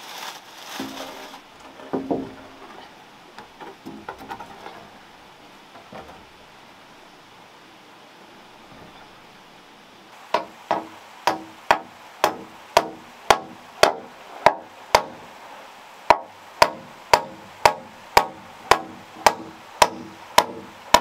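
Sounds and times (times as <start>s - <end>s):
hand tool knocking on timber: 1.8s - 2.6s, 3.6s - 4.9s, 10.3s - 15.2s, 16.1s - 21.0s.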